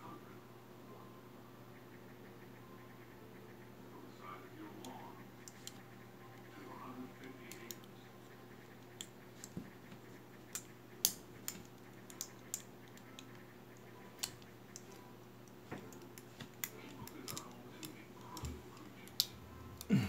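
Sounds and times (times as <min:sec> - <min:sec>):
multitool metallic clicks and snaps: 0:10.5 - 0:13.4, 0:14.2 - 0:19.9.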